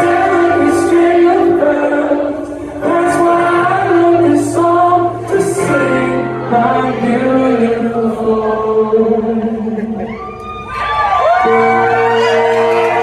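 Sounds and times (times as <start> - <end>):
audience singing along: 0.0 - 10.0
man singing: 0.0 - 10.1.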